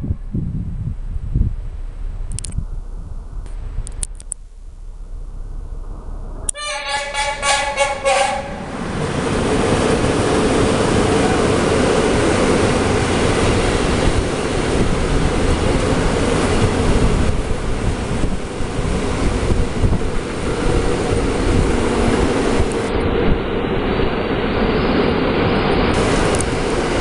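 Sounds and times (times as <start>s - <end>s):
freight train rolling on rails: 5.0s - 27.0s
locomotive horn blast: 6.5s - 8.8s.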